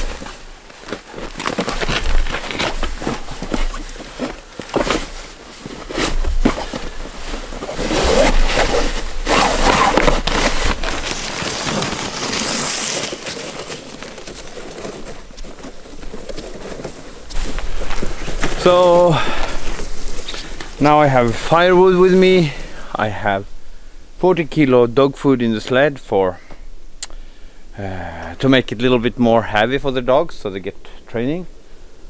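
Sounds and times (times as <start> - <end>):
nylon bag rustling: 0.0 - 22.6.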